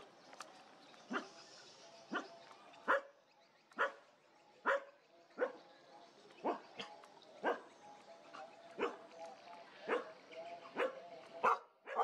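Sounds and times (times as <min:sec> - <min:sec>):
dog barking: 0:03.8 - 0:04.0, 0:04.6 - 0:05.6, 0:06.4 - 0:07.7, 0:08.8 - 0:09.0, 0:09.9 - 0:10.1, 0:10.7 - 0:12.0.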